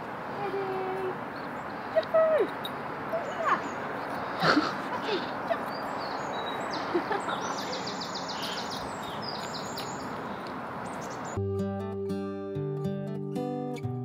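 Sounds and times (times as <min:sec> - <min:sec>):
outdoor background noise: 0:00.0 - 0:11.5
small birds chirping: 0:00.4 - 0:11.4.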